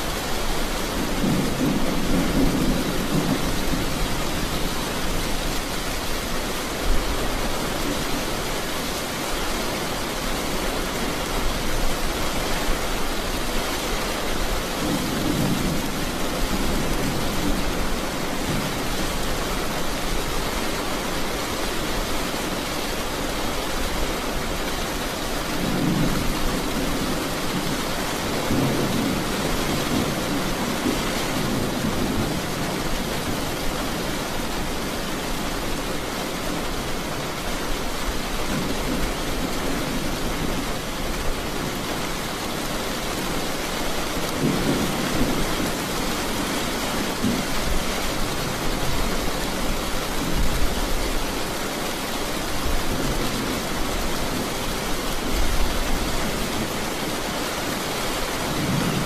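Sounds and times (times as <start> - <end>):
steady rain falling: 0.0 - 59.0
low thunder rumbling: 0.6 - 5.6.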